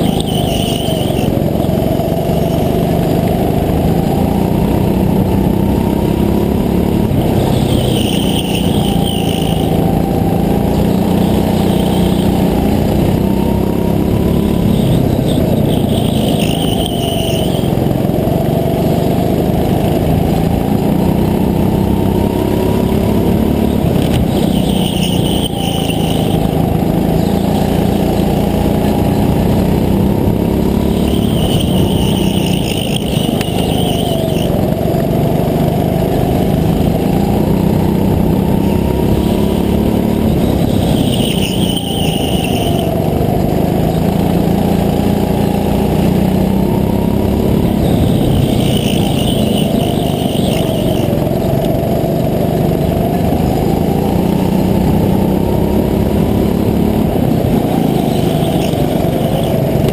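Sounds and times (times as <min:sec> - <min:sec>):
high squeal: 0:00.0 - 0:03.0, 0:05.9 - 0:17.8, 0:20.4 - 0:34.8, 0:38.4 - 0:51.5, 0:57.3 - 0:59.9
go-kart motor: 0:00.0 - 0:59.9.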